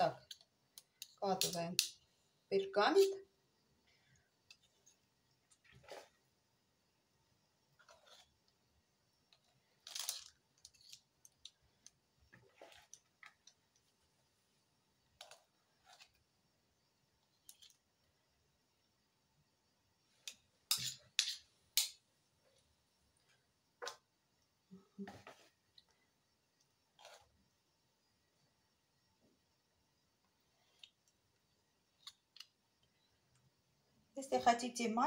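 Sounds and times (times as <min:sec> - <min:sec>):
metal spoon scraping a bowl: 0:02.9 - 0:03.2, 0:07.8 - 0:08.4, 0:20.7 - 0:21.9.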